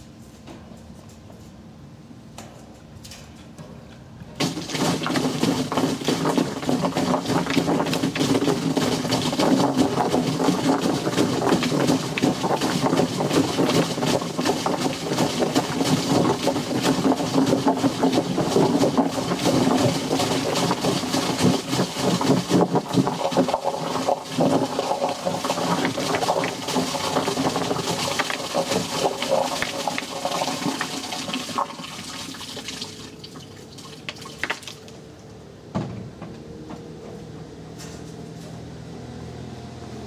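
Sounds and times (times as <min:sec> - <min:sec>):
water gushing into a tank: 0:04.4 - 0:34.9.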